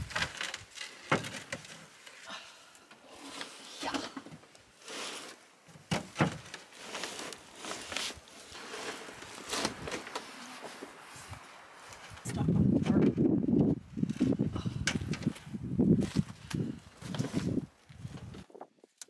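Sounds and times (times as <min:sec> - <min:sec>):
boards scraping: 0:03.0 - 0:11.0.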